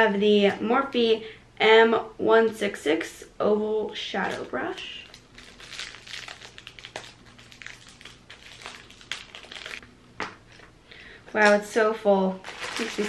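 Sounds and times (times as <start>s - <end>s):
plastic wrapping crinkling: 4.1s - 9.8s, 12.3s - 13.0s.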